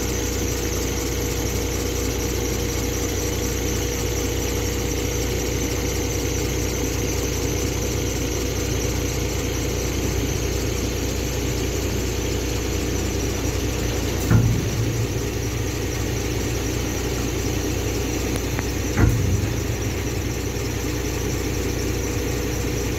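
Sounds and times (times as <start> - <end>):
truck engine and hydraulics whining: 0.0 - 22.9
heavy metal clunks: 13.4 - 21.6.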